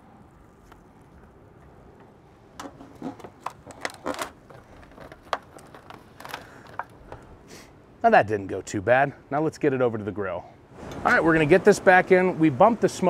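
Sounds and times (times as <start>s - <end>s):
foil pan crinkling and popping: 2.6s - 7.3s.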